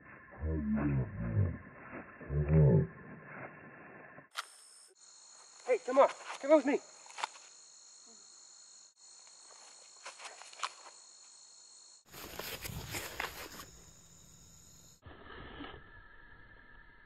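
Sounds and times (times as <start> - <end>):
crickets chirring: 4.2 - 17.0
feet scuffing on grass: 12.1 - 13.8
rustling and handling noise: 12.1 - 13.8.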